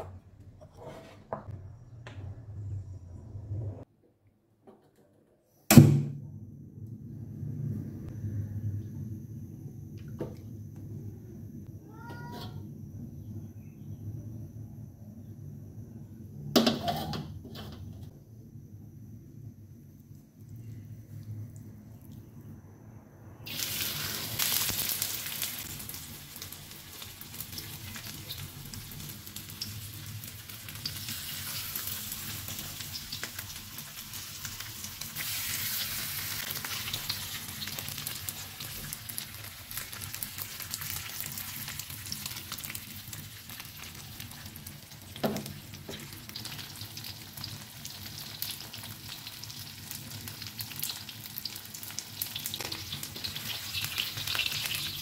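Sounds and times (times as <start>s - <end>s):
chicken sizzling in oil: 23.4s - 55.0s.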